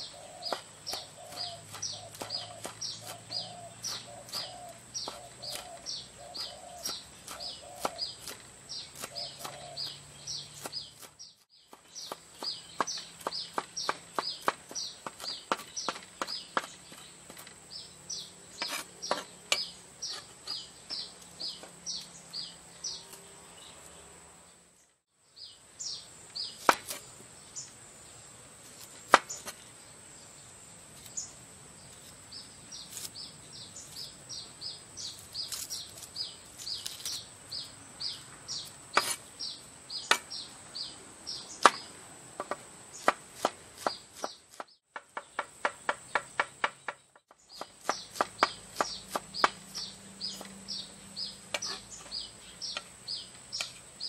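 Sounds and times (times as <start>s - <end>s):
cleaver chopping on wooden board: 0.4s - 17.5s, 18.6s - 21.8s, 26.6s - 27.0s, 29.1s - 29.6s, 38.9s - 39.2s, 40.0s - 40.3s, 41.6s - 50.6s.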